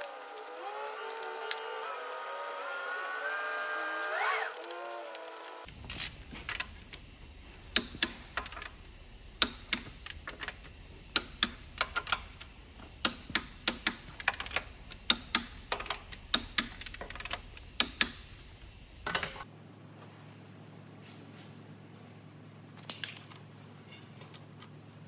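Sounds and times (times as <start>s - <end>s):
ratchet wrench clicking: 7.6s - 18.4s.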